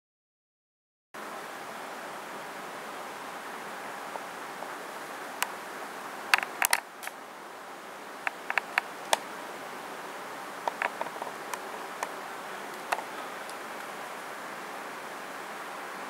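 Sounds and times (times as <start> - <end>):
steady hiss: 1.2 - 16.0
camcorder handling clicks and taps: 8.3 - 9.2, 10.7 - 11.3.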